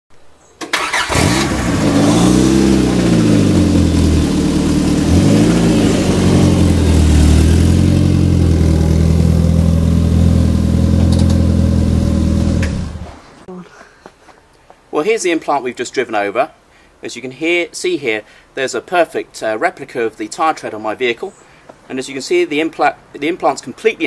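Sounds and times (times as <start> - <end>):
car engine running: 1.2 - 13.2.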